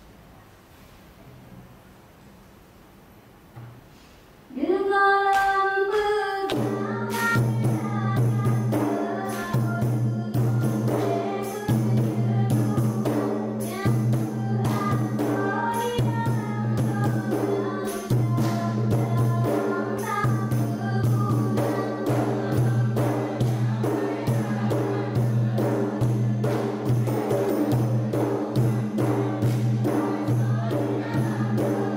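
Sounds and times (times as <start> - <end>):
synchronised hand claps and body slaps: 5.3 - 7.4, 29.4 - 29.8
group singing: 5.5 - 31.9.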